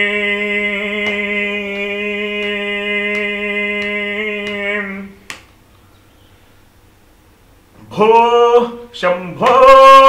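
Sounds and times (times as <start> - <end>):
man singing a long note: 0.0 - 5.2, 7.8 - 10.0.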